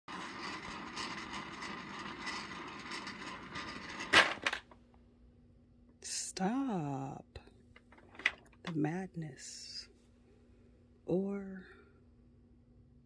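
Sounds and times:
vials rattling and clattering: 0.1 - 4.8, 7.8 - 8.7.

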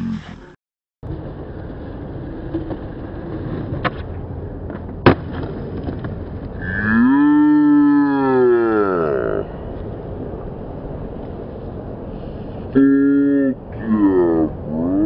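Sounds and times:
skateboard wheels rolling on concrete: 1.0 - 15.0
skateboard clacks: 1.1 - 6.7
person shouting: 6.6 - 9.4, 12.8 - 15.0.

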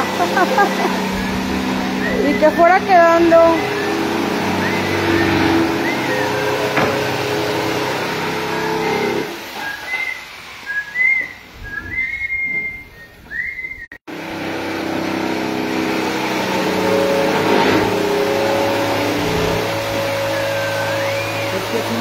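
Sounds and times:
table saw running: 0.0 - 12.4, 14.1 - 22.0
high whistle-like chirps: 1.0 - 9.0, 9.6 - 14.0, 17.8 - 21.8.

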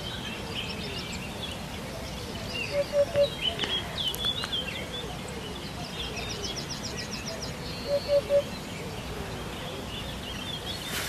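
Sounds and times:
small songbirds chirping: 0.0 - 11.0
hoopoe call: 2.3 - 3.9, 7.8 - 8.5.

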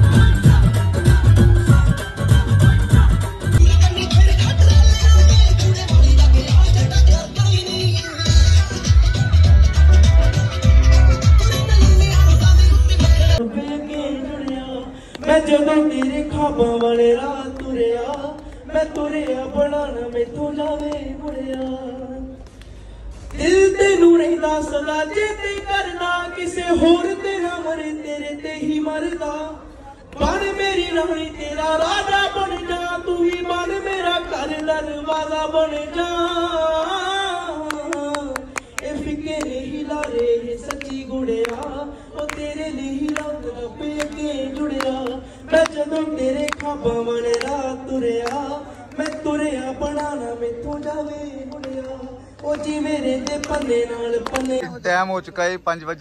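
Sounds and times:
man singing into microphone: 0.0 - 22.4, 23.3 - 54.8.

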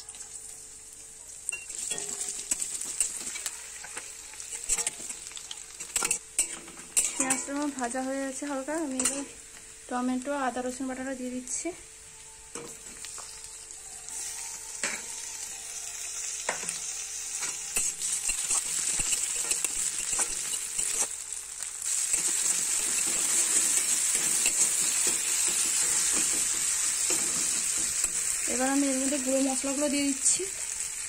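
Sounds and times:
food sizzling in hot oil: 0.0 - 31.0
metal spatula scraping and tapping pan: 1.6 - 7.6, 9.0 - 9.3, 17.4 - 21.2, 22.1 - 28.3.

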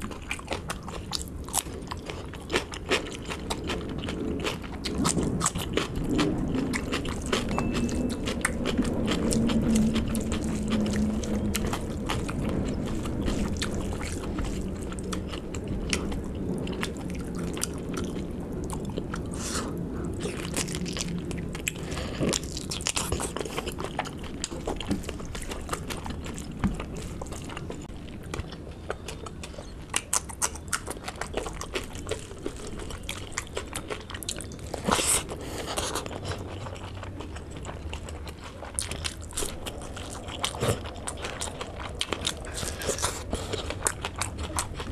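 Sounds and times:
person chewing food: 0.0 - 44.9.

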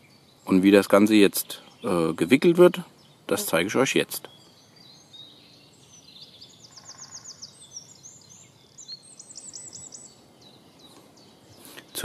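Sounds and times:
outdoor background noise: 0.0 - 12.0
songbirds chirping: 0.0 - 12.0.

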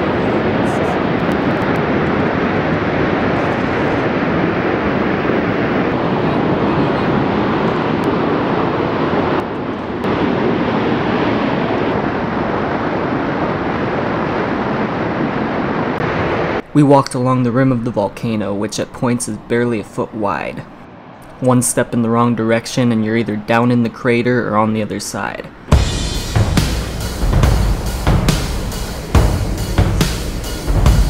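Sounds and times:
volcanic steam venting roar: 0.0 - 16.9, 25.7 - 31.0.

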